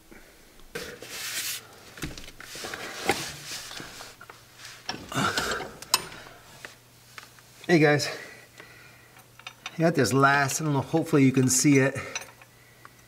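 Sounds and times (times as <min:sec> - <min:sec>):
rustling: 0:00.7 - 0:07.7
tools clicking and knocking: 0:04.8 - 0:06.3, 0:09.2 - 0:09.8, 0:12.0 - 0:13.0.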